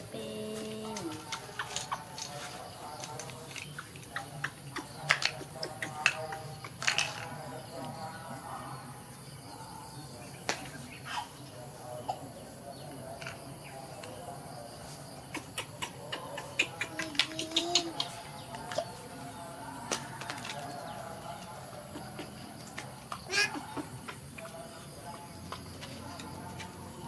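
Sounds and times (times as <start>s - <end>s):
plastic items clicking and tapping: 5.1s - 7.4s.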